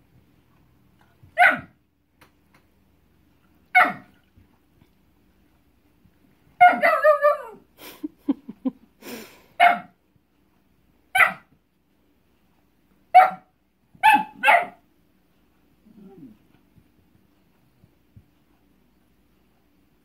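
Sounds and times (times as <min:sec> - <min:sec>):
dog barking: 0:01.4 - 0:01.8, 0:03.7 - 0:04.2, 0:06.6 - 0:07.6, 0:09.6 - 0:10.0, 0:11.1 - 0:11.5, 0:13.1 - 0:14.8.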